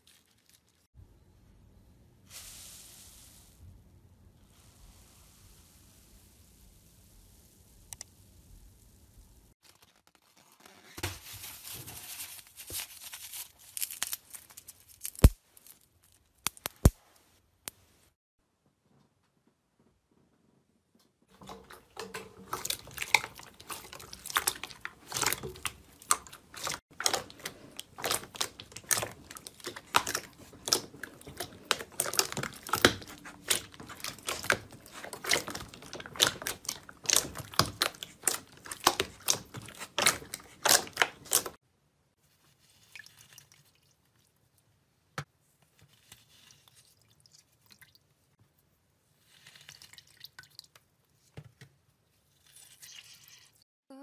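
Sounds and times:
faint wet crackles: 21.3s - 41.6s
wet slime squelching: 21.3s - 41.6s, 49.1s - 51.3s.

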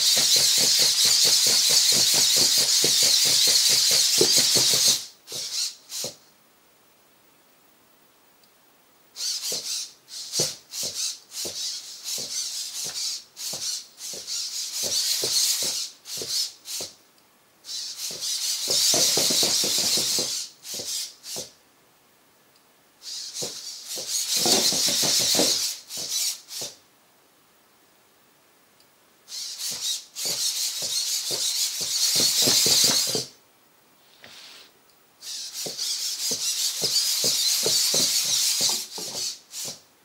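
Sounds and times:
metal feet tapping on wood: 0.0s - 6.2s, 10.4s - 17.0s, 18.1s - 21.5s, 23.4s - 26.8s, 29.7s - 33.3s, 35.6s - 39.8s.

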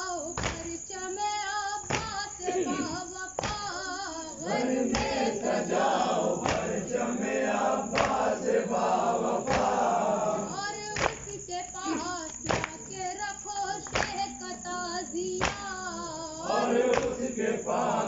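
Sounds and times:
chorus of voices singing: 1.8s - 12.9s, 13.6s - 18.0s
chest-beating slaps: 1.9s - 2.2s, 2.8s - 3.6s, 4.6s - 10.1s, 13.9s - 14.3s, 16.6s - 17.4s
man singing a lament: 2.4s - 3.1s.

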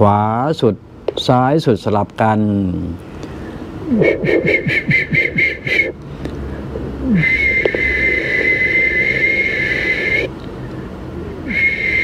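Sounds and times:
high whistling: 3.9s - 6.0s, 7.0s - 10.3s, 11.4s - 12.0s.

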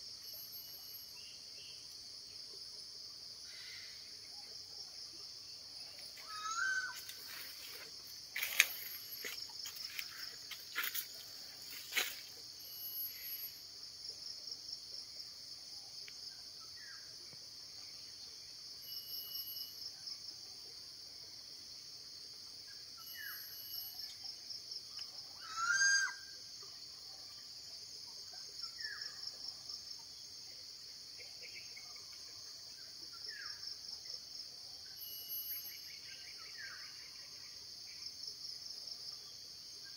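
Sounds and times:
insects buzzing: 0.0s - 20.4s
insect pulsed trills: 0.0s - 39.9s.

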